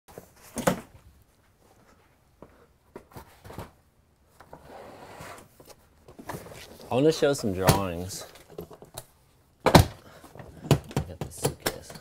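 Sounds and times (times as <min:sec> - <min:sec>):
soft rustle: 0:00.1 - 0:08.5
handling knocks and clicks: 0:07.6 - 0:12.0.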